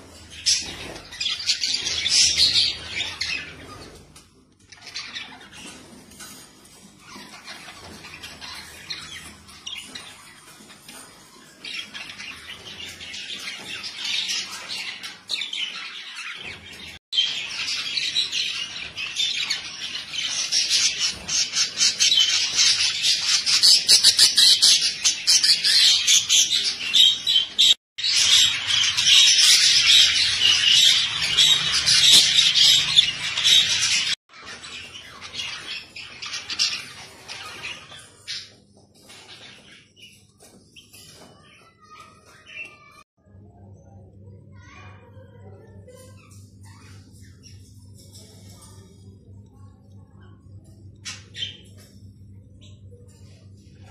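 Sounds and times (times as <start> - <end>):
budgerigars chattering and chirping: 11.6 - 38.5.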